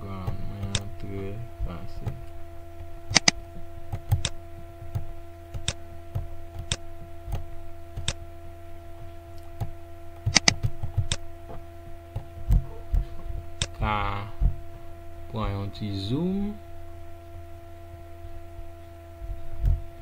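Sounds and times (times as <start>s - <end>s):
steady electrical hum: 0.0s - 20.0s
mouse button clicks: 10.3s - 10.6s.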